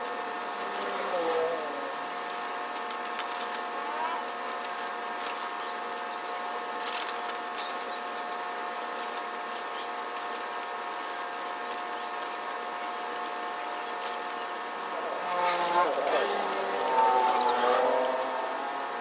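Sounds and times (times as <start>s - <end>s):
vinyl film peeling: 0.1s - 18.4s.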